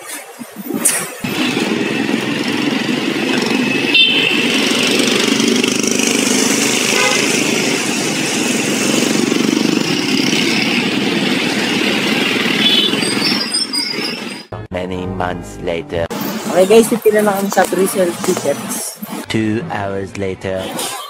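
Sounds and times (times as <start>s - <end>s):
road noise hum: 0.0s - 21.0s
motorcycle engines passing: 1.2s - 14.3s.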